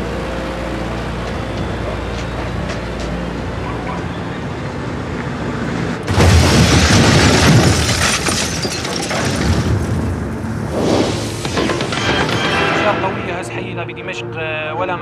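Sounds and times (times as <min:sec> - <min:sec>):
vehicle engine running: 0:00.0 - 0:06.1
rumble and crackling flames: 0:05.0 - 0:13.4
loud explosion blast: 0:06.1 - 0:08.3.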